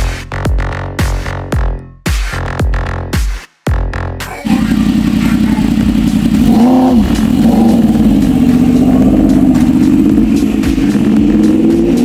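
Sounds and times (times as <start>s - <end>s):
motorcycle engine running hard: 4.3s - 12.0s.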